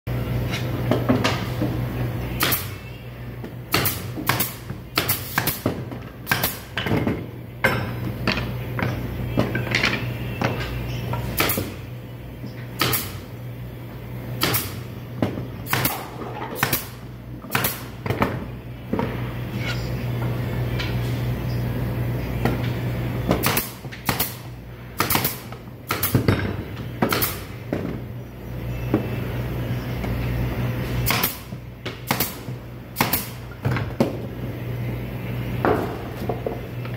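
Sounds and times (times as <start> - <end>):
steady low hum: 0.1 - 36.9.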